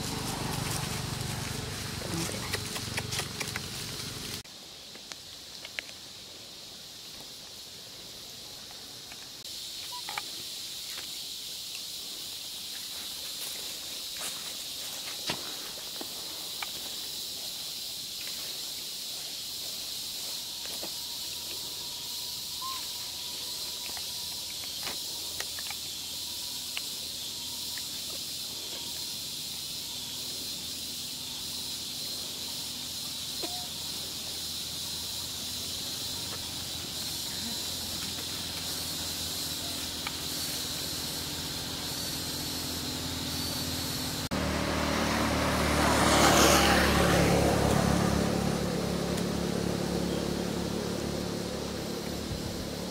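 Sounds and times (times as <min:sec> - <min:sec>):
motor vehicle low hum: 0:00.0 - 0:04.4, 0:20.2 - 0:52.9
high-pitched insect drone: 0:06.1 - 0:52.9.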